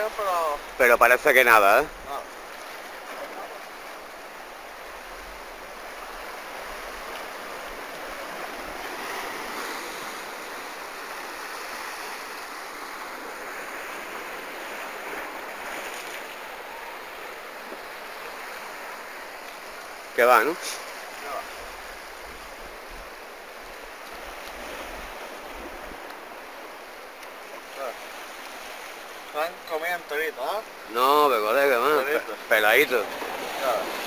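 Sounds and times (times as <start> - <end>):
waves washing onto beach: 0.0 - 34.0.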